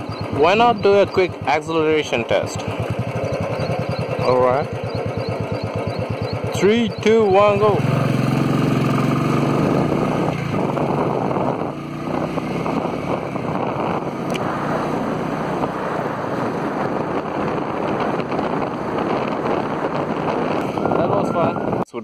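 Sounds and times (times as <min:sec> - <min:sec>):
motorcycle accelerating: 0:00.0 - 0:21.8
wind rush on microphone: 0:06.7 - 0:22.0.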